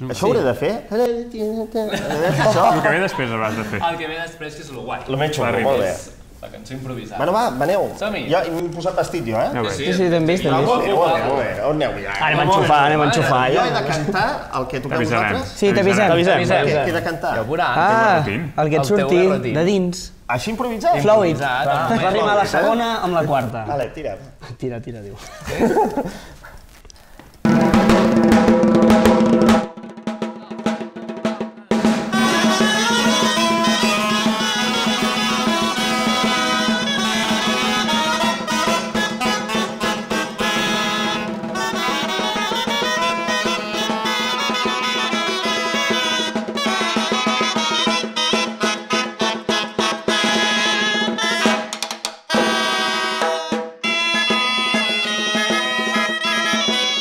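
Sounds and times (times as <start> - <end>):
rumba band playing: 1.4 - 4.2, 8.0 - 19.5, 27.4 - 57.0
drum roll: 27.4 - 57.0.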